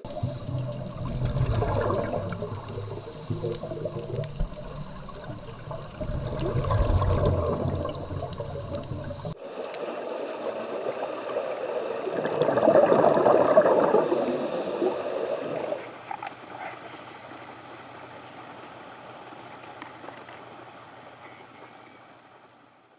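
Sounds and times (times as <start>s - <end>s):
underwater breath bubbling: 0.0s - 16.0s.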